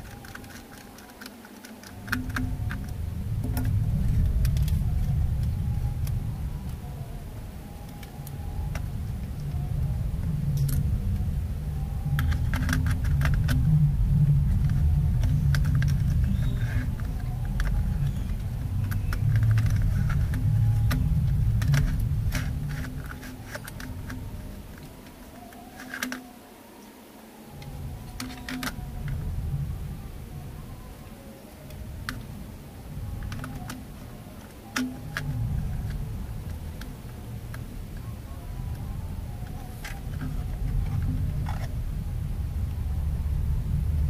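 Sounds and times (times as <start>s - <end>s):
plastic and metal clicks: 0.0s - 6.8s, 12.0s - 13.7s, 14.5s - 26.3s, 27.6s - 29.3s, 33.0s - 38.1s
low rumble: 1.9s - 25.4s, 27.5s - 44.0s.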